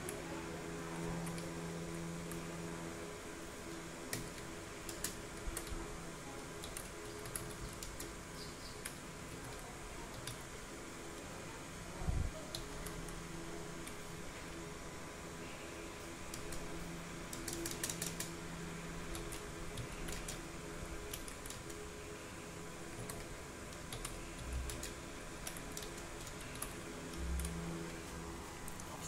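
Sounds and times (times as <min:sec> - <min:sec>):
steady low hum: 0:00.0 - 0:29.0
keyboard keystroke clicks: 0:17.3 - 0:18.3.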